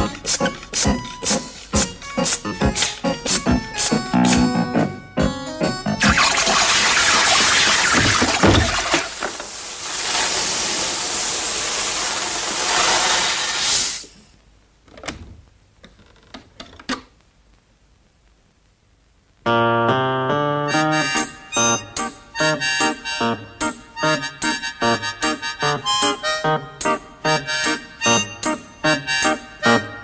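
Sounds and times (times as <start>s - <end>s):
plucked music: 0.0s - 7.0s
paint spraying hiss: 9.5s - 14.2s.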